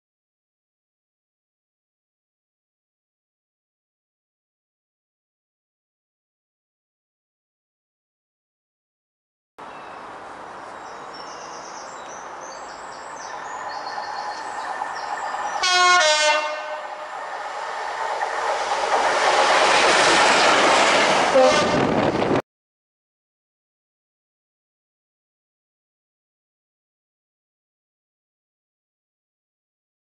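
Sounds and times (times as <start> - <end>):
diesel locomotive engine and rail noise: 9.6 - 22.4
two-tone train horn: 15.6 - 17.0, 21.2 - 22.0.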